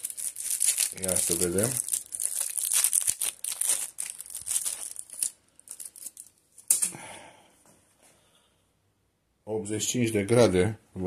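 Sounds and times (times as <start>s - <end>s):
packaging crinkling and rustling: 0.0s - 6.4s.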